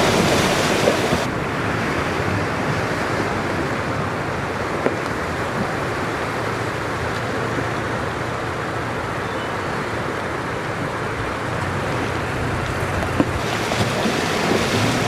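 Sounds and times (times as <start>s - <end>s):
water splashing around tyres: 0.0s - 8.9s, 10.2s - 15.0s
truck engine running: 10.0s - 15.0s.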